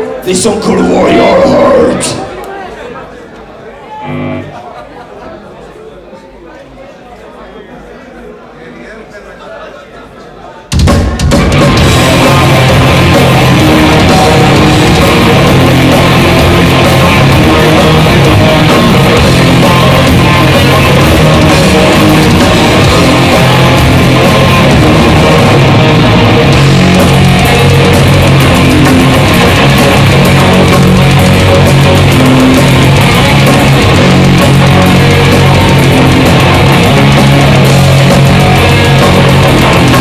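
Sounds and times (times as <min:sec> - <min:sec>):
bass guitar: 0:00.4 - 0:02.2, 0:04.0 - 0:04.6, 0:10.8 - 0:40.0
distorted electric guitar: 0:00.4 - 0:02.3, 0:04.0 - 0:04.7, 0:10.8 - 0:40.0
drum kit: 0:10.7 - 0:40.0.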